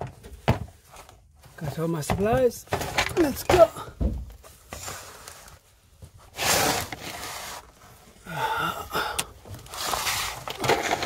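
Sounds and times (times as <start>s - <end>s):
person grunting: 8.2s - 9.2s
person breathing hard: 8.2s - 9.7s.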